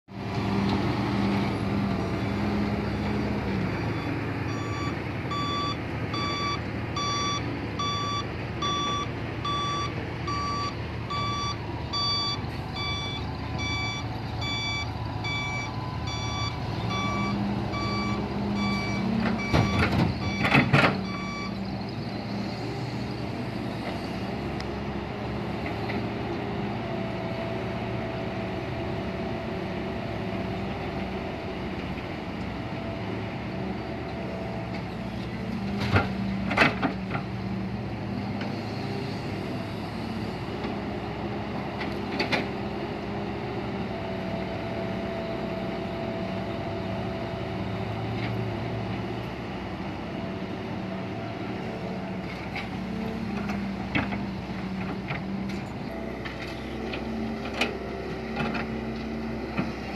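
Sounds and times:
truck engines running: 0:00.1 - 0:59.9
reverse alarm beeping: 0:03.8 - 0:21.6.

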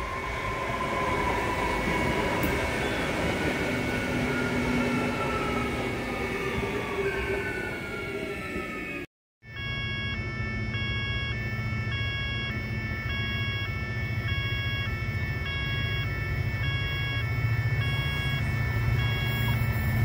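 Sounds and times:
electric train hum: 0:00.0 - 0:20.0
two-tone railway warning alarm: 0:00.0 - 0:20.0.

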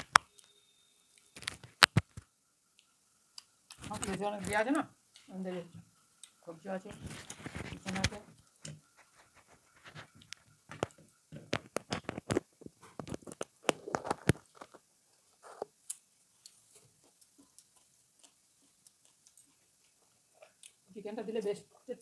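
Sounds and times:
wet chewing: 0:06.1 - 0:20.9.

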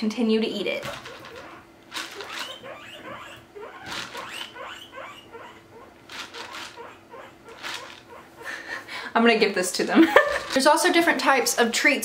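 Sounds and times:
guinea pigs squealing: 0:00.8 - 0:08.6.

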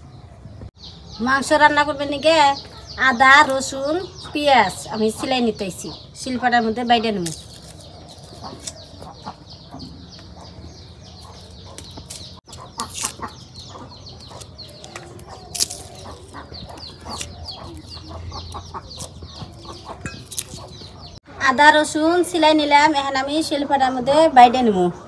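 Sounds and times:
chickens clucking: 0:02.6 - 0:21.4.

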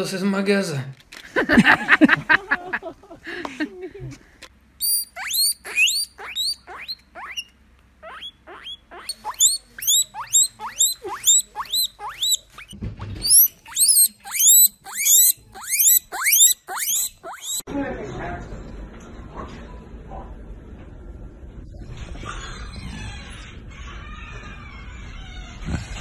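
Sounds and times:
guinea pig squealing: 0:04.8 - 0:17.7.

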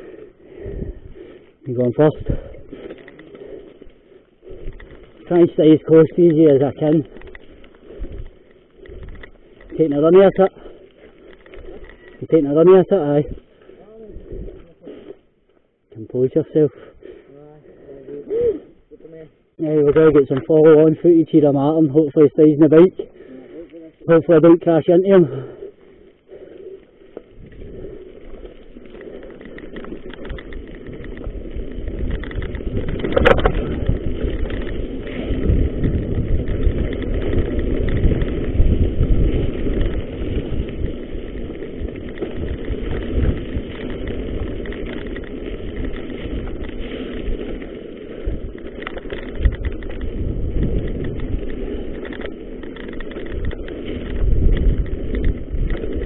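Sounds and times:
wind rushing over microphone: 0:00.0 - 0:03.8, 0:04.4 - 0:14.8, 0:26.3 - 0:56.0
bike tyres rolling on gravel: 0:00.0 - 0:56.0
knocks from rough ground: 0:29.4 - 0:56.0.

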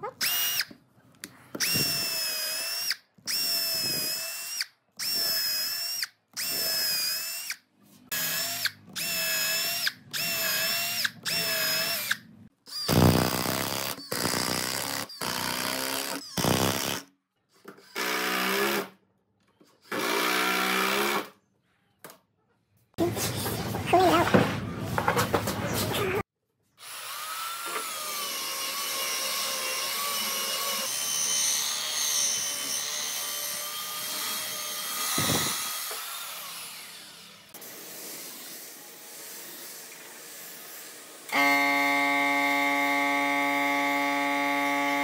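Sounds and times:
cordless drill boring into wood: 0:01.6 - 0:17.0, 0:26.8 - 0:37.7, 0:40.8 - 0:45.0.

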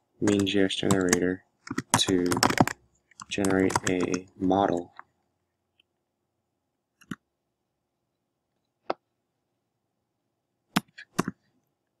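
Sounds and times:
computer keyboard key presses: 0:00.2 - 0:04.2.

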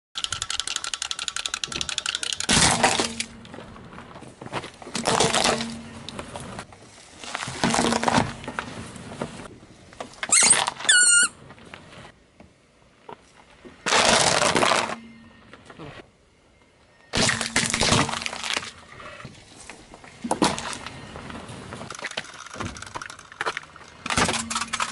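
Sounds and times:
wind-up toy clicking: 0:00.2 - 0:02.5, 0:21.9 - 0:23.5
objects crunching under tyre: 0:02.5 - 0:12.2, 0:13.0 - 0:15.8, 0:17.1 - 0:24.9
short falling squeak: 0:10.3 - 0:11.4.

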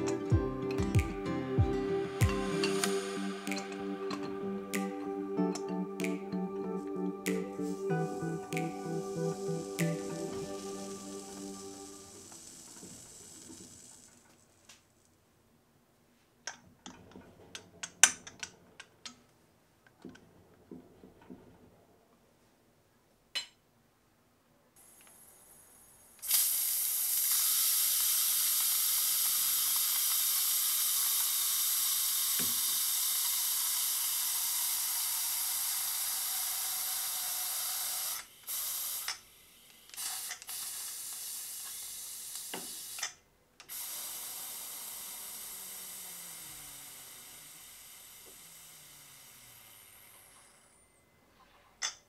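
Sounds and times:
steam hissing from pressure cooker: 0:01.9 - 0:04.4, 0:07.3 - 0:14.3, 0:26.2 - 0:50.7.

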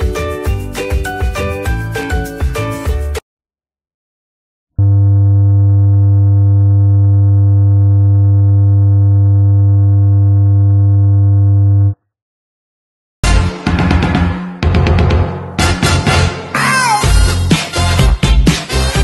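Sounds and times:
low electronic test tone buzz: 0:04.8 - 0:12.0.

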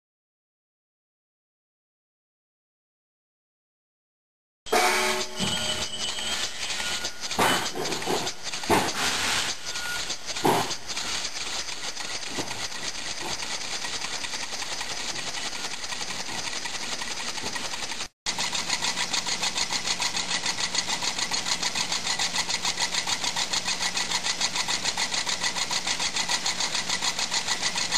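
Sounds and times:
air engine chuffing: 0:04.7 - 0:27.9
air hissing: 0:06.3 - 0:12.8.

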